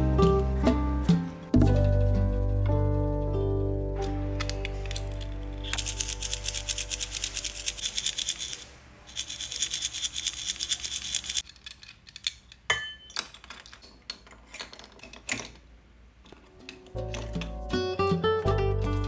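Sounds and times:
metal keychains rattling: 0:04.6 - 0:12.3.

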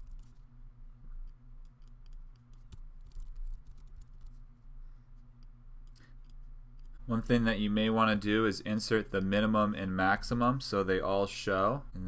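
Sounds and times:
faint low hum: 0:00.0 - 0:12.0
computer keyboard and mouse clicks: 0:01.6 - 0:04.4.

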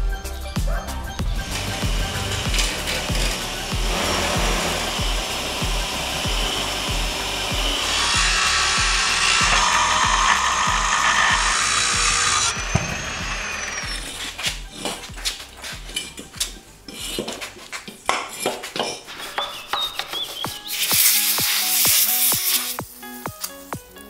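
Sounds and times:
angle grinder cutting steel: 0:01.4 - 0:14.8, 0:20.7 - 0:22.8
spray hissing: 0:03.7 - 0:13.5, 0:20.7 - 0:23.7
metal knocks and scraping: 0:07.6 - 0:20.3.

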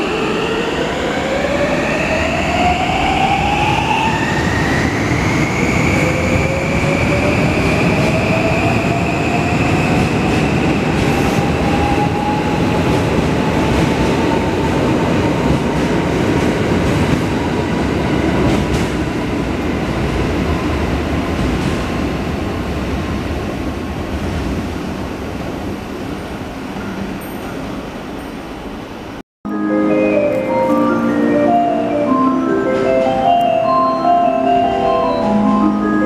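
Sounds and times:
train wheels rumbling on rails: 0:00.0 - 0:28.9.

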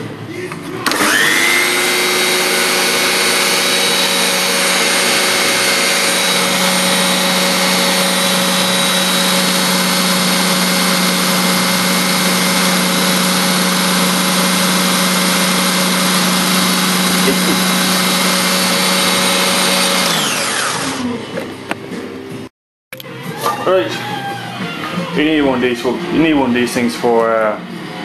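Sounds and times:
food processor running: 0:00.8 - 0:21.4.

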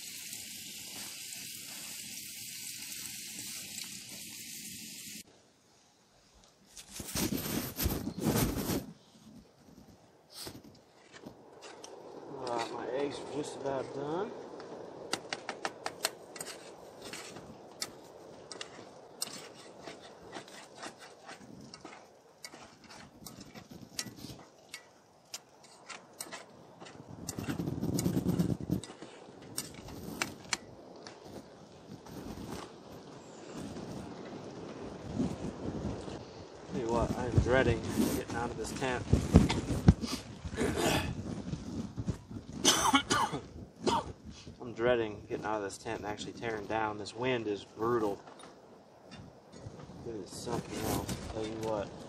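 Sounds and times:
bacon sizzling in a skillet: 0:00.0 - 0:05.2
eggs sizzling and popping: 0:00.0 - 0:05.3, 0:14.3 - 0:34.4
low rustle: 0:05.1 - 0:52.0.

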